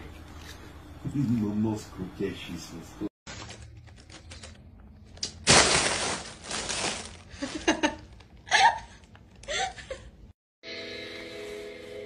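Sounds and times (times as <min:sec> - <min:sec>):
plastic bag crinkling: 0:03.3 - 0:08.4.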